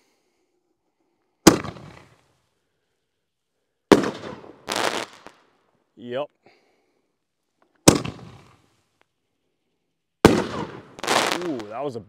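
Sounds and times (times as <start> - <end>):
firework launch bang: 1.4 - 2.2, 3.9 - 5.2, 7.9 - 8.6, 10.2 - 11.7
firework shell bursting in air: 1.5 - 2.2, 10.2 - 11.7
firework stars crackling burst: 1.5 - 2.4, 3.9 - 5.5, 7.9 - 8.8, 10.3 - 12.0.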